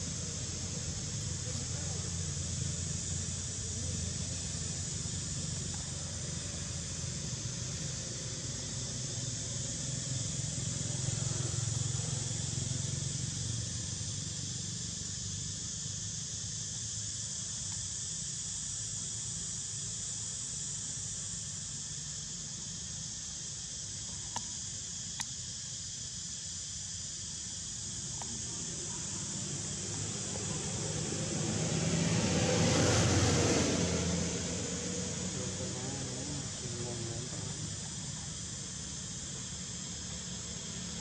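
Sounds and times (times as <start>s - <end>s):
high steady hiss: 0.0s - 41.0s
faint clicks: 24.1s - 24.5s.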